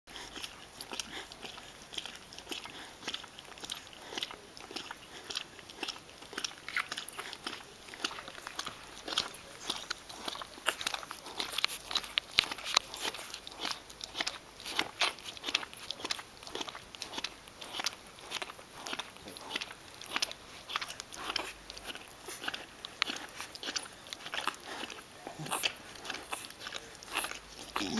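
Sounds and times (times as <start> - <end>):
puppies suckling: 0.1 - 27.9.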